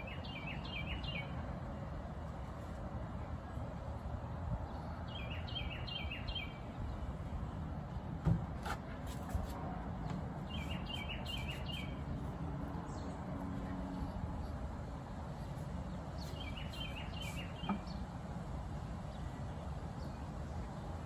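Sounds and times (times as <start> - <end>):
songbird chirping: 0.0 - 1.4, 5.0 - 7.2, 10.4 - 12.3, 15.5 - 18.1
thump: 8.2 - 8.8.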